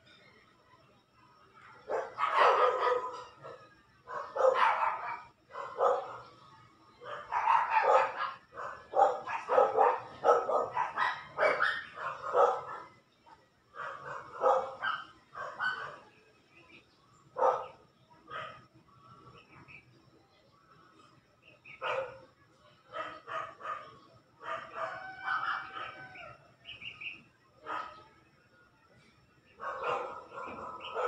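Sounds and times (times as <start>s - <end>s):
dog barking: 1.8s - 6.4s, 7.0s - 16.1s, 17.4s - 18.7s, 21.7s - 22.3s, 22.9s - 26.1s, 27.6s - 28.1s, 29.5s - 31.0s.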